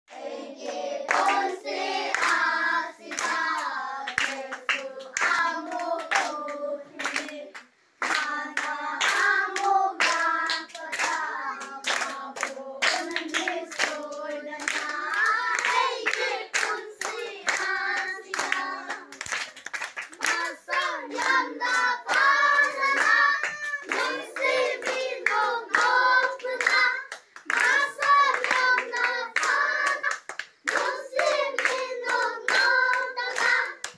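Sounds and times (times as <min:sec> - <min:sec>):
children singing together: 0:00.1 - 0:19.2, 0:20.2 - 0:33.9
clapping in time: 0:03.1 - 0:06.4, 0:11.8 - 0:33.9.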